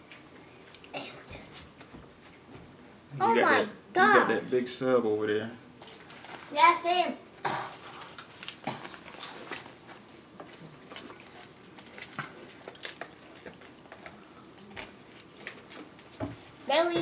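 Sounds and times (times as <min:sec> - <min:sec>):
aluminium foil crinkling: 0:05.8 - 0:16.2
chewing: 0:07.7 - 0:16.2.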